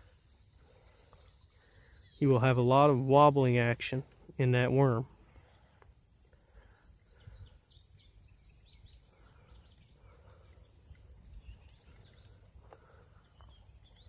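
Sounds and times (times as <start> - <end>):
faint distant bird chirps: 0.0 - 14.0
high insect trill: 0.0 - 14.0.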